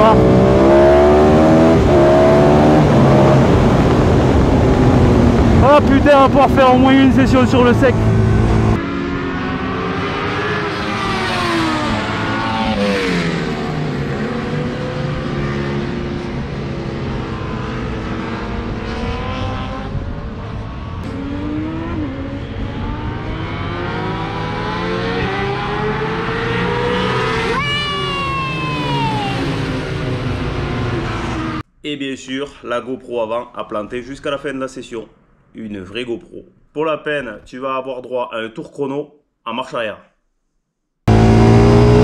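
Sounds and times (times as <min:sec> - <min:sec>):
motorcycle engine revving: 0:00.0 - 0:27.8, 0:41.1 - 0:42.0.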